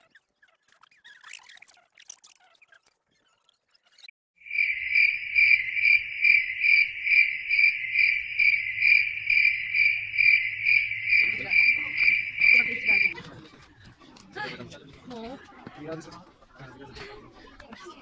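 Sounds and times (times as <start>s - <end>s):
cricket chirping: 4.4s - 13.2s.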